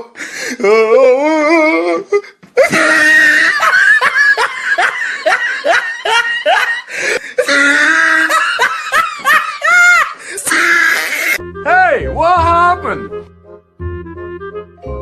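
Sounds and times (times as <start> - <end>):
person laughing loudly: 2.6 - 11.4.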